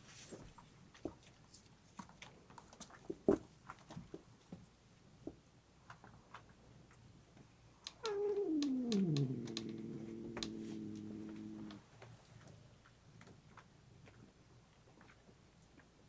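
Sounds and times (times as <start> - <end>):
cat growling low: 7.9 - 11.9
cat crunching dry kibble: 8.0 - 11.8.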